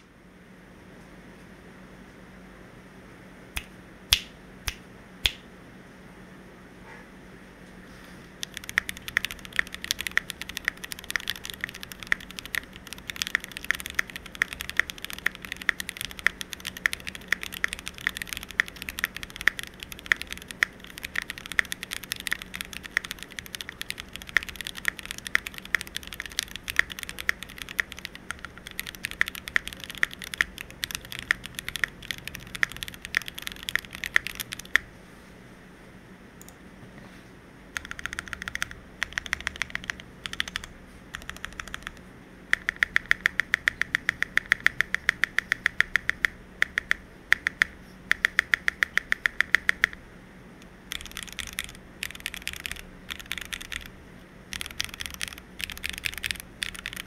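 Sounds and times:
mechanical keyboard typing: 8.4 - 34.9, 37.8 - 50.0, 50.9 - 53.9, 54.5 - 57.0.

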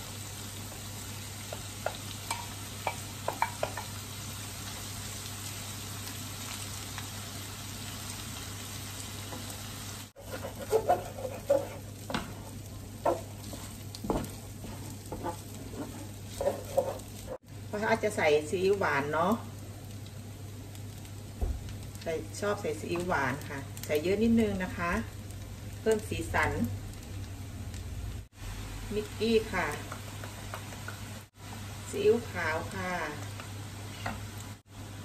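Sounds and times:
rice sizzling in a frying pan: 0.0 - 35.0
wooden spoon scraping a pan: 10.2 - 17.4.

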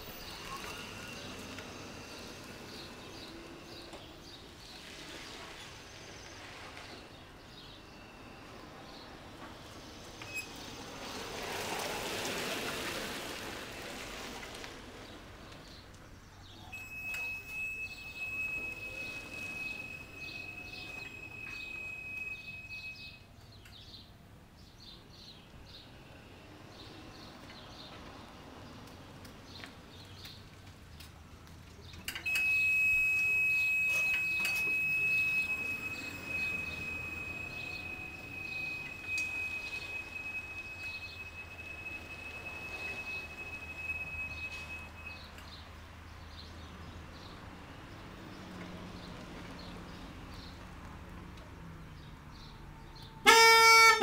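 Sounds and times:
cart warning buzzer high tone: 16.7 - 23.2, 32.2 - 45.3, 53.2 - 54.0.

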